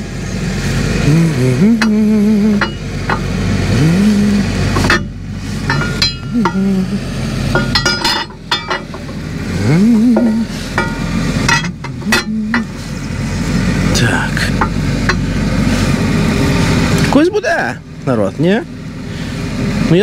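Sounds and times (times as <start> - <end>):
metal parts clinking: 4.8 - 6.7, 7.5 - 9.2, 10.2 - 12.7.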